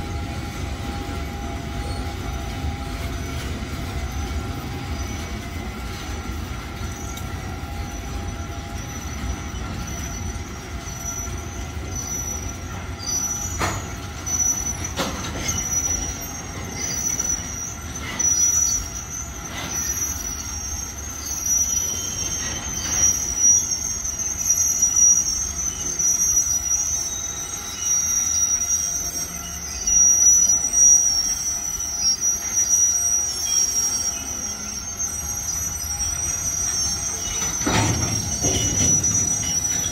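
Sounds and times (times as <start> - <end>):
train low rumble: 0.0 - 39.9
train wheels squealing: 0.0 - 39.9
sharp clanks: 36.9 - 39.9.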